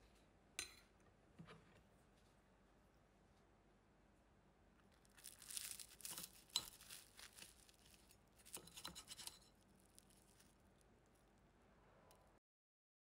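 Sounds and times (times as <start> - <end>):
pastry crackling and crunching: 4.8 - 11.5.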